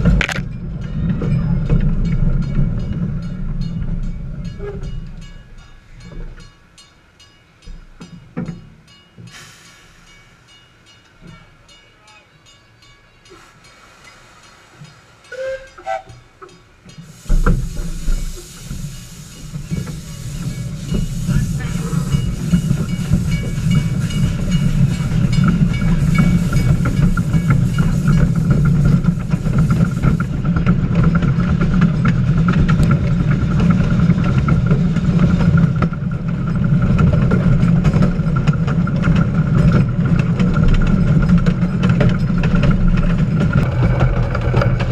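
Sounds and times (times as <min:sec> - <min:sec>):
locomotive low rumble: 0:00.0 - 0:44.9
steam hissing from locomotive: 0:09.2 - 0:11.6, 0:13.2 - 0:16.2, 0:16.9 - 0:31.5.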